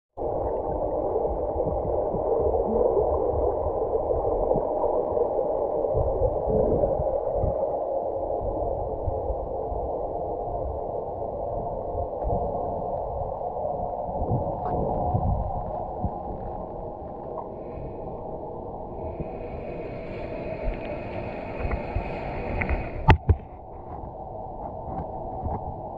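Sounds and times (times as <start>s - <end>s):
muffled underwater hiss: 0.2s - 25.9s
low underwater bumps and thumps: 1.4s - 2.9s, 14.2s - 17.5s, 21.6s - 25.8s.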